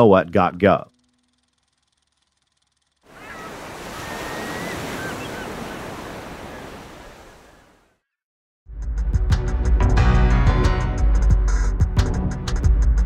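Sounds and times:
faint high chirping calls: 3.1 - 7.8
ocean waves breaking: 3.1 - 7.9.

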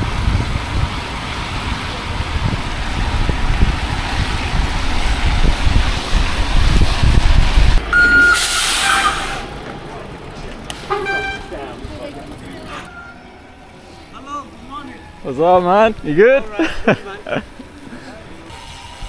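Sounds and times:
wind rumbling on microphone: 0.0 - 9.7
brief high squeal: 8.0 - 9.4, 12.9 - 13.3
sharp hiss: 8.2 - 9.4.

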